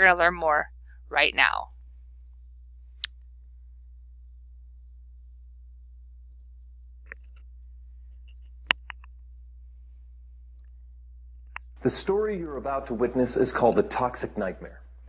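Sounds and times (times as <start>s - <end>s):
steady low hum: 0.0s - 15.0s
computer mouse clicks: 7.1s - 7.4s.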